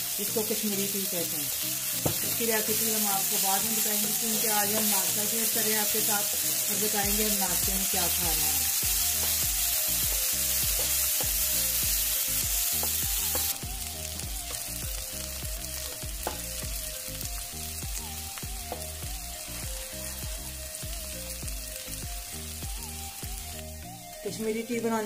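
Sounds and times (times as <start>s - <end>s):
onions sizzling in a frying pan: 0.0s - 25.0s.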